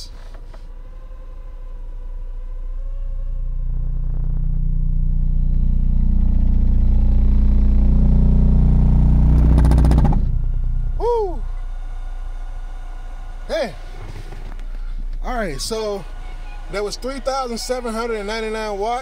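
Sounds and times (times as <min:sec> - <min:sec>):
deep subwoofer test tone drone: 0:00.0 - 0:16.1.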